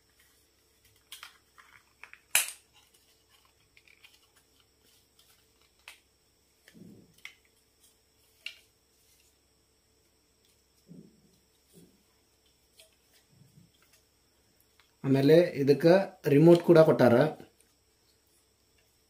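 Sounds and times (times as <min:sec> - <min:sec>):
sharp plastic snaps: 0:01.0 - 0:02.6.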